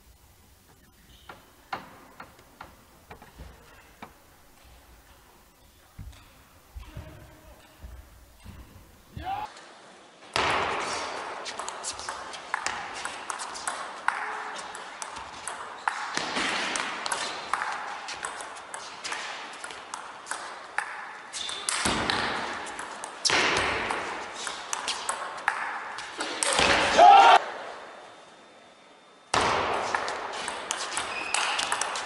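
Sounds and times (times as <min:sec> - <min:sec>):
table tennis ball pinging: 0:29.4 - 0:32.0.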